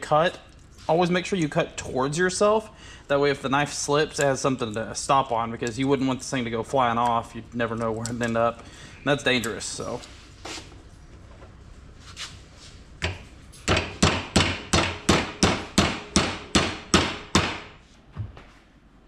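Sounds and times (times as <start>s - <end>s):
hammer striking metal in vise: 13.0s - 17.7s.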